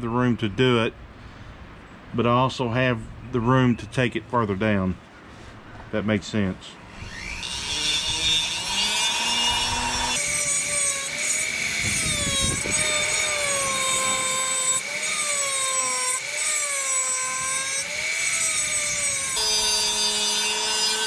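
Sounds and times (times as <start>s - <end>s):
rotary tool motor whine: 6.9s - 21.0s.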